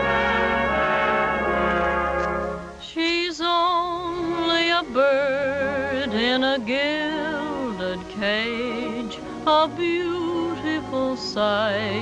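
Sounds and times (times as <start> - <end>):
brass chord: 0.0 - 2.9
soft band accompaniment: 0.0 - 12.0
woman singing a slow ballad: 2.8 - 12.0.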